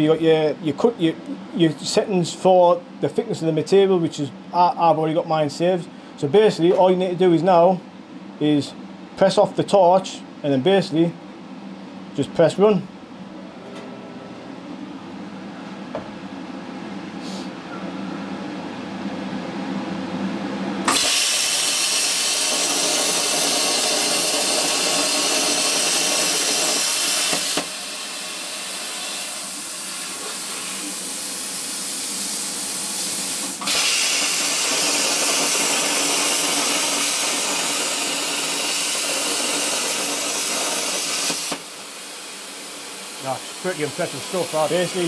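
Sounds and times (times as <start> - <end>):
plasma torch hissing: 20.9 - 45.0.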